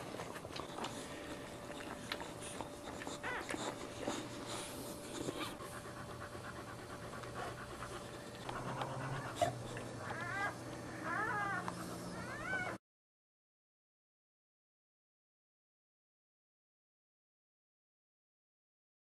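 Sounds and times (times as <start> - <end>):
dog panting hard: 0.0 - 12.2
puppies whimpering: 0.1 - 12.8.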